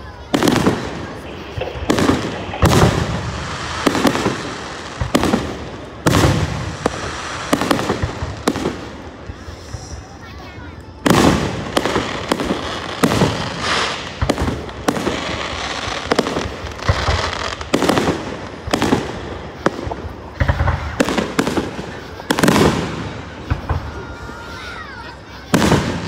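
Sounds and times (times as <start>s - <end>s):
fireworks bursting with echo: 0.0s - 26.0s.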